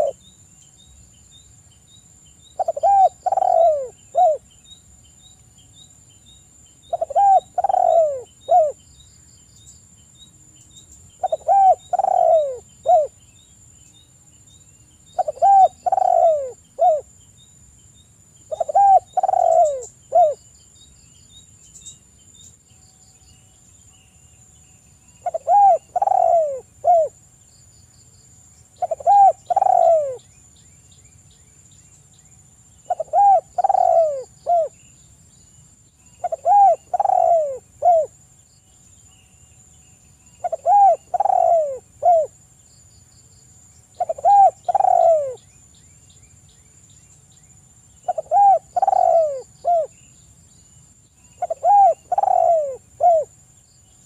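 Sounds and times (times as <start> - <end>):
dove cooing: 0.0 - 0.2, 2.6 - 4.4, 6.9 - 8.8, 11.2 - 13.2, 15.2 - 17.1, 18.5 - 20.4, 25.2 - 27.2, 28.8 - 30.2, 32.9 - 34.8, 36.2 - 38.1, 40.4 - 42.4, 44.0 - 45.4, 48.0 - 49.9, 51.4 - 53.3.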